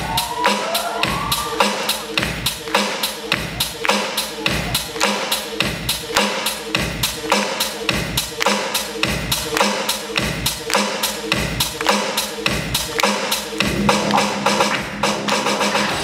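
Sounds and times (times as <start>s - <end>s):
dance music: 0.0s - 16.0s
sharp percussive hits: 9.6s - 15.8s
pulsing bass: 12.4s - 16.0s.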